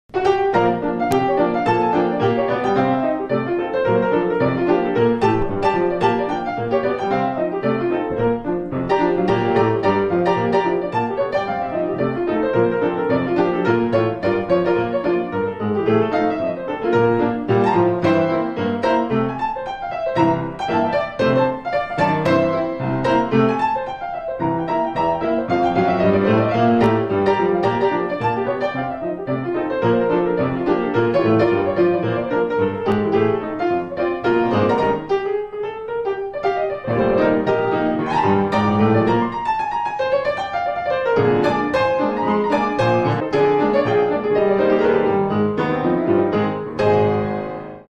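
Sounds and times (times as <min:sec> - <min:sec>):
fast piano music: 0:00.1 - 0:47.9.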